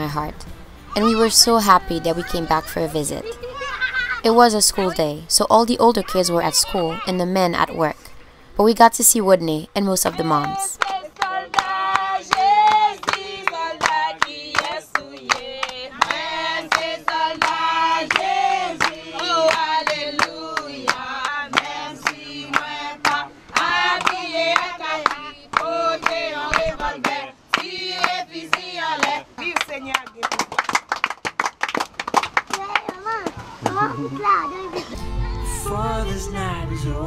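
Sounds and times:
women and children singing: 0:01.0 - 0:03.4, 0:10.0 - 0:29.9
hand clapping: 0:10.8 - 0:33.9.

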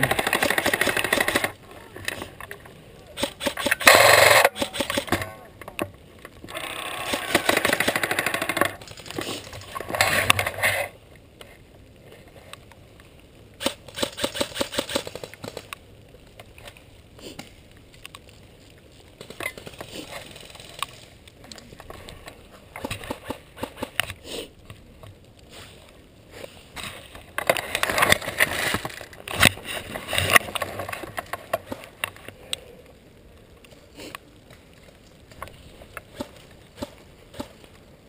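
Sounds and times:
airsoft gun rapid firing bursts: 0:00.0 - 0:01.5, 0:03.2 - 0:05.2, 0:07.0 - 0:08.6, 0:13.6 - 0:15.6.

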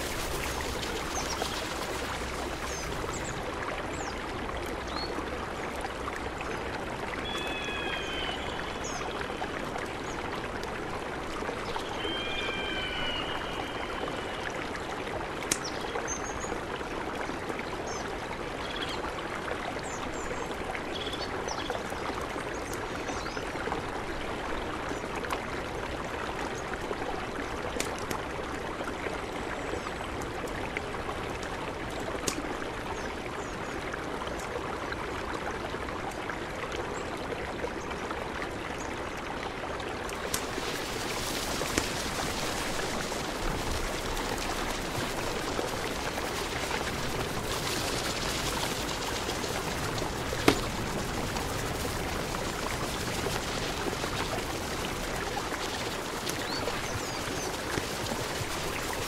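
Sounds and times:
campfire popping: 0:00.0 - 0:03.5, 0:40.1 - 0:59.0
river rushing: 0:00.0 - 0:15.6, 0:40.0 - 0:59.0
bird calling: 0:07.2 - 0:09.1, 0:11.8 - 0:14.4.

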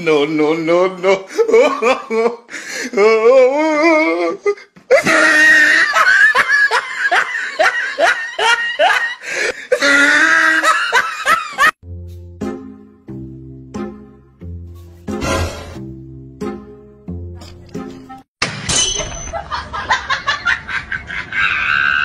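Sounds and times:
loud laughter: 0:04.9 - 0:11.8, 0:19.3 - 0:22.0
music: 0:11.8 - 0:18.3.

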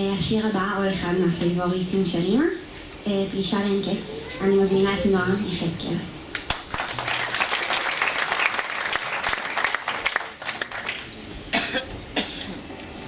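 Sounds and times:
audience applauding: 0:06.3 - 0:11.2.

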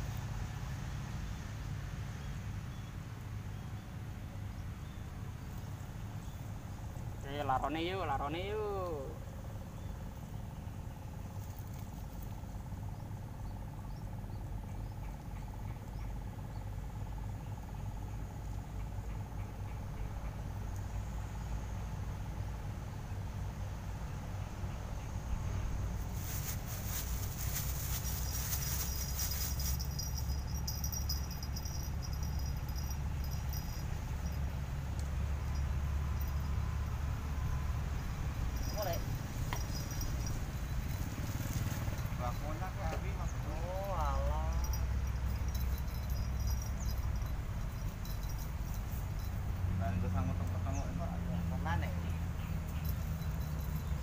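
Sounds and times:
insect trill: 0:05.5 - 0:54.0
wind or handling rumble: 0:25.2 - 0:51.1, 0:51.7 - 0:54.0
rustling crackles: 0:26.0 - 0:32.1, 0:38.6 - 0:42.4.

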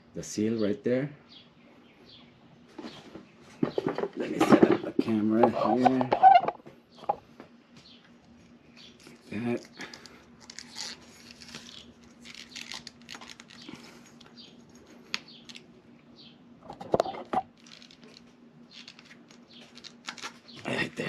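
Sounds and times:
faint steady hum: 0:00.0 - 0:21.0
rustling handling noise: 0:08.2 - 0:15.7, 0:16.7 - 0:20.6.

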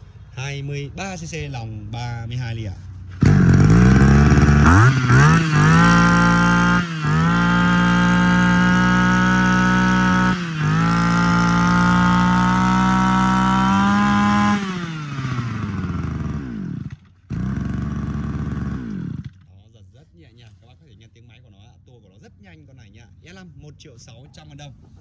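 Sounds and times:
brush cutter engine revving: 0:03.1 - 0:19.4.

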